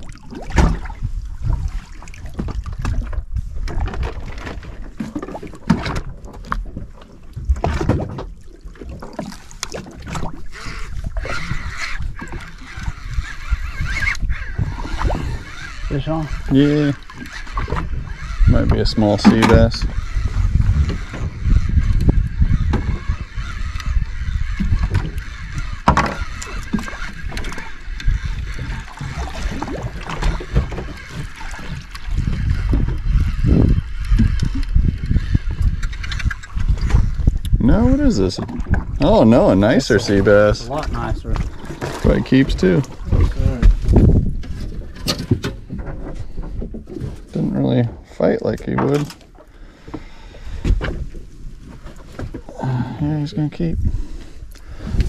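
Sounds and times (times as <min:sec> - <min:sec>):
wind buffeting microphone: 0:00.0 - 0:49.0, 0:49.9 - 0:55.0
water lapping against boat hull: 0:00.0 - 0:55.0
fishing reel clicking: 0:10.5 - 0:18.7, 0:21.7 - 0:28.9.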